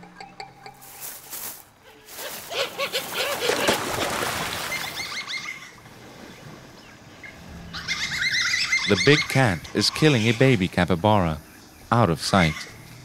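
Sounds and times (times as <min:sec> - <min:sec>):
animals splashing into water: 0:02.3 - 0:07.2
birds chirping: 0:04.6 - 0:13.0.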